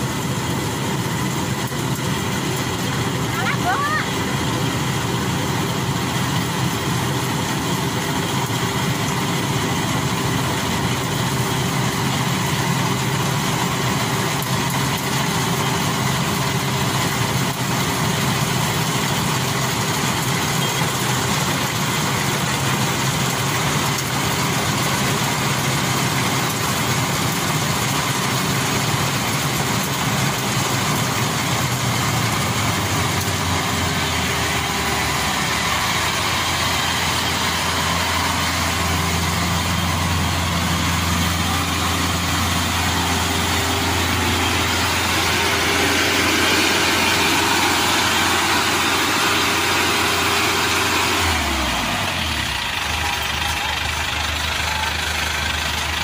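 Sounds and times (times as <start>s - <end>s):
combine harvester engine running: 0.0s - 56.0s.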